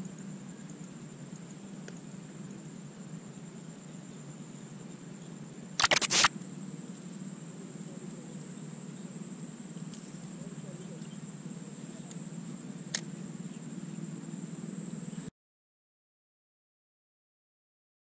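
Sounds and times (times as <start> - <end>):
steady low hum: 0.0 - 15.3
thin high whine: 5.8 - 6.3.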